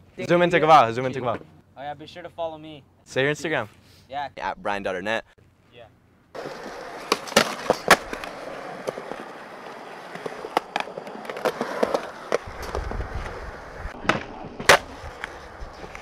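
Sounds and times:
skateboard wheels rolling on concrete: 6.3s - 16.0s
skateboard clacks: 6.4s - 16.0s.

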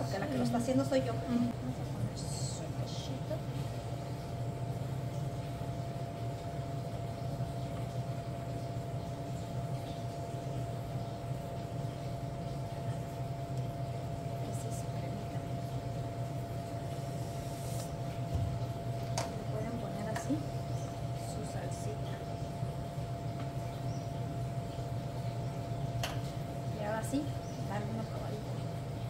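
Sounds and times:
kitchen appliance humming and whining: 0.0s - 29.0s.

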